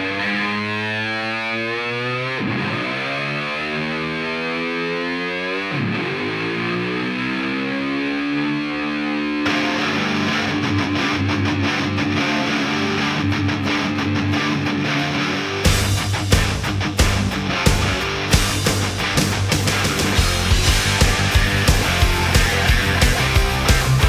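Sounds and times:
distorted electric guitar chords: 0:00.0 - 0:24.0
rock band with drums: 0:09.4 - 0:24.0.

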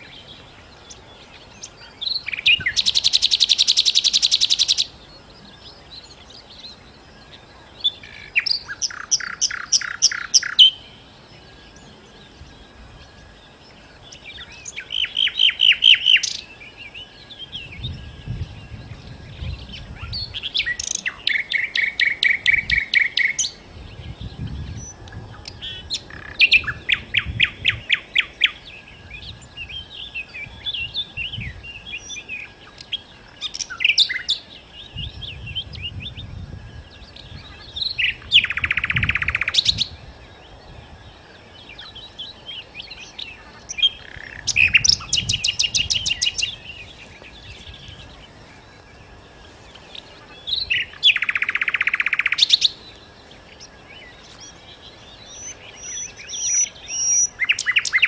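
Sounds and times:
soft bird chirps: 0:00.0 - 0:58.0
bird trilling: 0:08.2 - 0:10.8, 0:50.0 - 0:52.8
songbird singing high notes: 0:14.1 - 0:40.6, 0:41.6 - 0:48.4, 0:49.7 - 0:52.9, 0:53.5 - 0:58.0.

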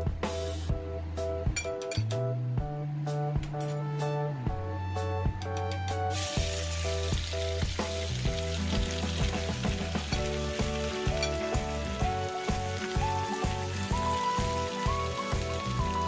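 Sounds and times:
background music: 0:00.0 - 0:16.0
meat sizzling in a wok: 0:06.1 - 0:16.0.

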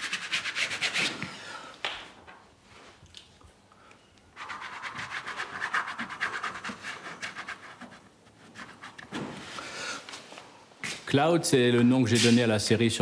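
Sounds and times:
fingers rubbing paint on canvas: 0:04.4 - 0:09.2.

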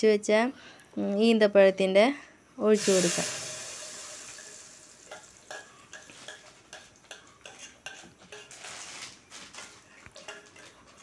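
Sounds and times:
faint sizzle in hot ghee: 0:02.6 - 0:06.4.

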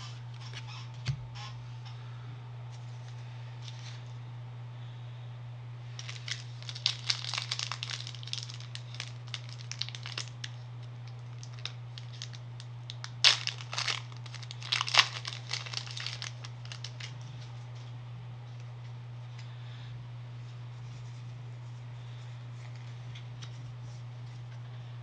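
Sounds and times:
foil wrapper crinkling: 0:06.0 - 0:17.5.

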